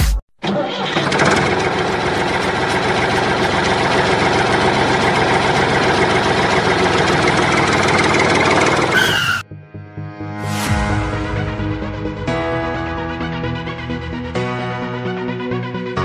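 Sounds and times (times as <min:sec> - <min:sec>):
tractor engine idling: 0:00.4 - 0:09.4.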